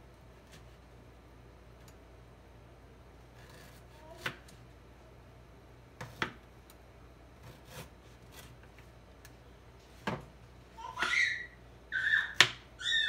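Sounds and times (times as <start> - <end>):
steady low hum: 0.0 - 12.0
knife chopping on cutting board: 3.4 - 4.4.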